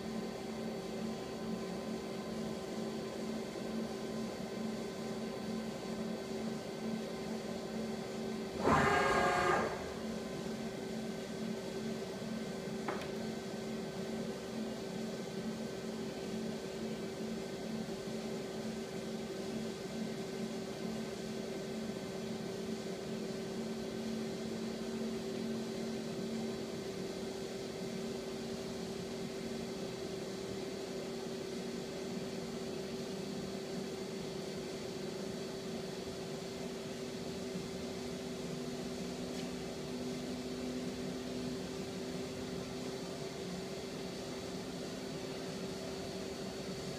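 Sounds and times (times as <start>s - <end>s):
lathe machine hum: 8.5s - 11.0s.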